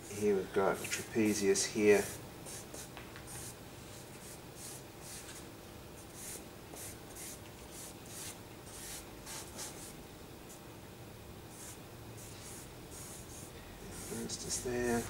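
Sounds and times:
charcoal scratching on paper: 6.2 - 9.9, 11.5 - 15.0.

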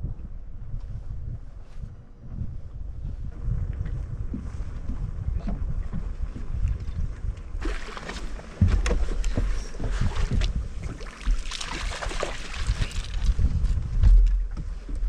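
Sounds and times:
wind rumble on microphone: 0.0 - 15.0
fish splashing at water surface: 7.6 - 8.7, 10.9 - 13.3.

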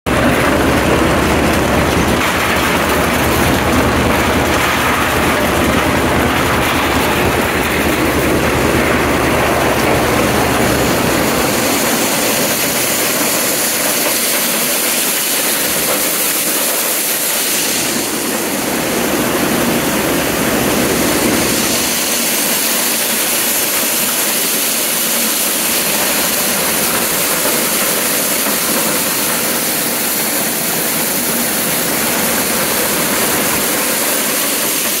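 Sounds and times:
tractor engine low note: 0.1 - 14.9
corn sheller rattling: 0.1 - 35.0.

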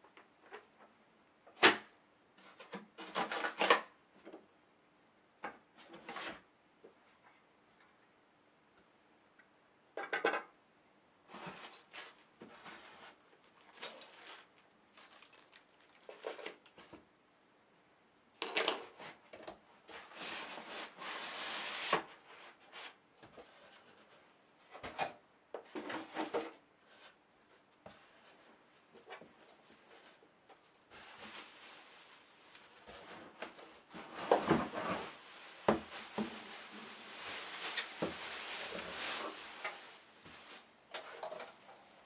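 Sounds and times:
packing materials rustling: 11.4 - 16.8, 30.9 - 42.0.

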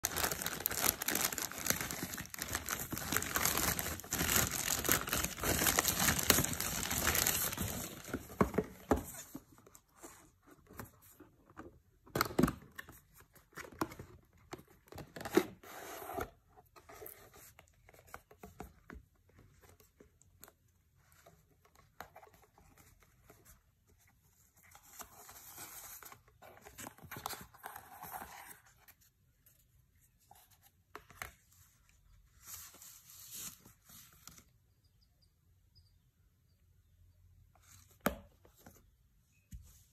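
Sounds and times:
mailer tearing and crinkling: 0.0 - 7.7
paper crinkling: 0.0 - 8.4.

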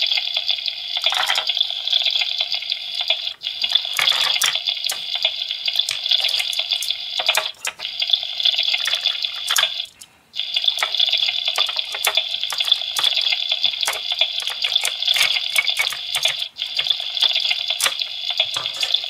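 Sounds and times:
electronic sizzling hiss from toy: 0.0 - 19.0
plastic toy food clicks: 3.6 - 7.9, 8.6 - 10.0, 10.6 - 19.0.

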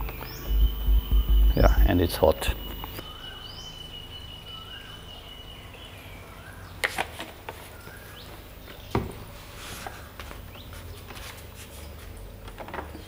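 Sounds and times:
faint bird chirps: 0.0 - 6.8
low steady hum: 0.0 - 6.8.

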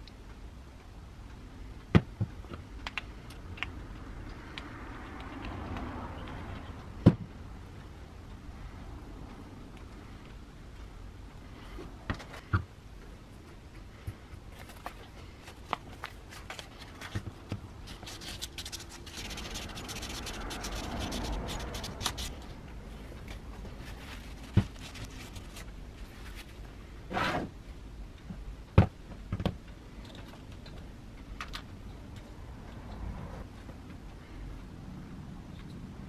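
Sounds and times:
metal parts scraping and rubbing: 17.8 - 22.5, 23.1 - 27.4.

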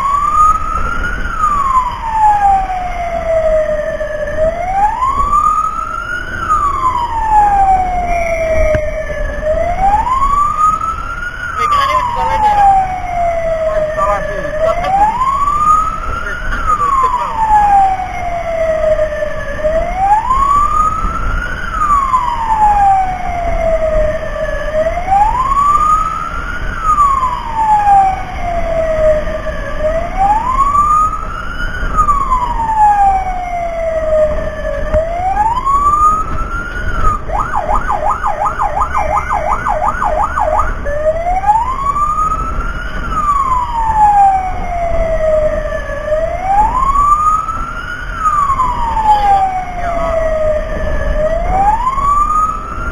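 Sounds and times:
siren wailing: 0.0 - 52.9
siren fast yelp: 6.5 - 18.9, 35.0 - 52.9.

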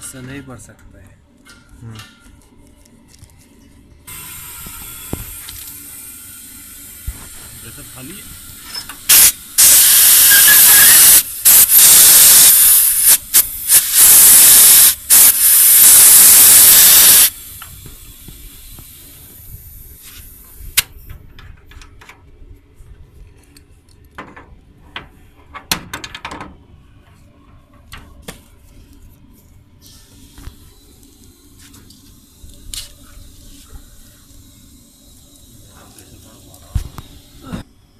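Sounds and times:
pressurized gas hissing: 4.1 - 20.9, 29.8 - 37.6.

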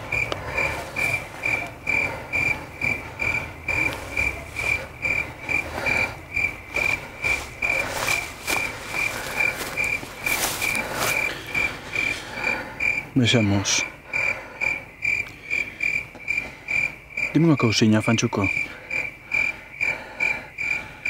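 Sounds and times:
rustles: 0.0 - 12.6.

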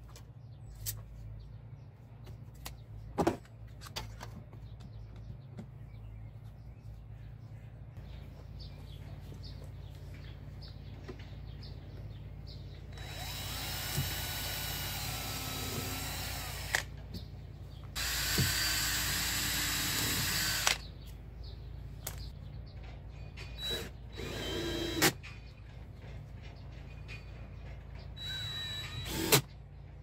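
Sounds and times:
drill click: 12.9 - 16.9, 18.0 - 20.8
drill boring through metal: 13.0 - 16.8, 18.0 - 20.8, 28.2 - 29.4.

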